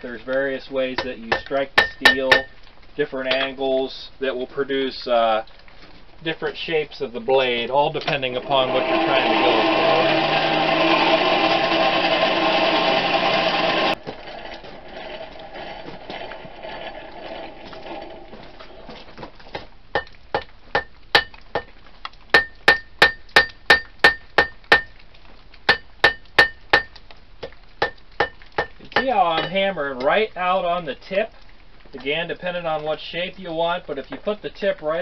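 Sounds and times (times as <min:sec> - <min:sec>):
hammer striking steel on anvil: 0:01.0 - 0:02.5, 0:20.0 - 0:21.7, 0:22.4 - 0:24.9, 0:25.7 - 0:27.0, 0:27.8 - 0:29.6
steady machine drone: 0:08.4 - 0:14.0.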